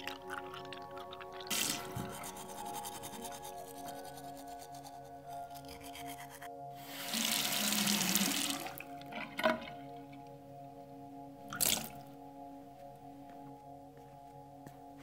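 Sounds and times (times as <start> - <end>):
held music drone: 0.0 - 15.0
water splashing into basin: 11.5 - 12.0.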